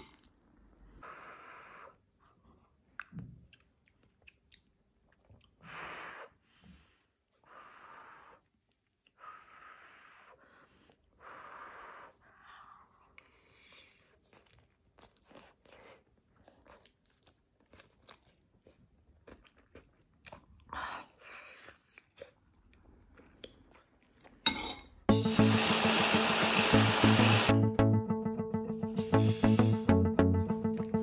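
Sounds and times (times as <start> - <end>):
chewing: 2.9 - 5.6, 12.4 - 24.4
electric hand blender running: 25.1 - 27.5.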